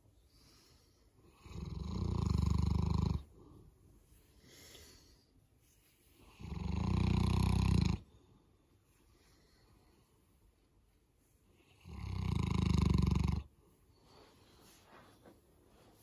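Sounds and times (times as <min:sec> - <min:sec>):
soft breath: 0:00.0 - 0:01.4, 0:03.2 - 0:06.4, 0:08.1 - 0:11.8, 0:13.5 - 0:16.0
dog snoring: 0:01.3 - 0:03.3, 0:06.4 - 0:08.0, 0:11.8 - 0:13.5.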